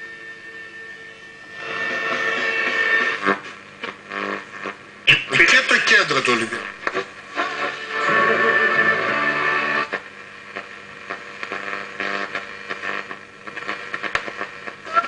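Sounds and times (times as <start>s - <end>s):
valve radio hum with hiss: 0.0s - 15.0s
radio crackles: 1.5s - 15.0s
radio programme sound: 5.1s - 8.3s.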